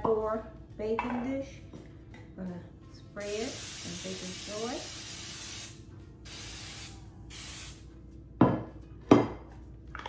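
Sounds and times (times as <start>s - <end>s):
aerosol spray hissing: 3.2s - 7.8s.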